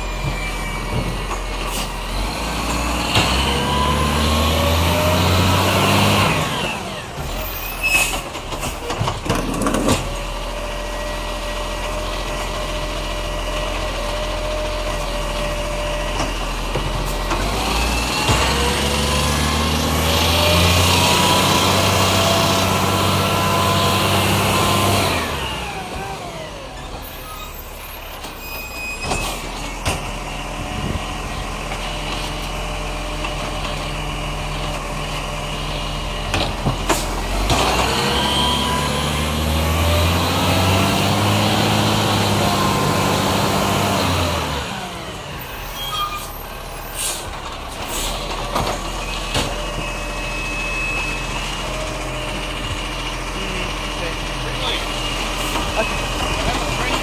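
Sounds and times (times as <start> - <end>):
garbage truck diesel engine revving: 0.0 - 28.3, 29.2 - 57.0.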